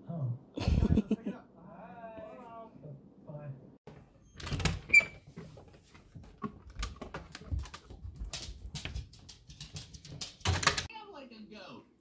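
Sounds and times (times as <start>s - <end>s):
dog claws clicking on wood: 6.4s - 10.9s.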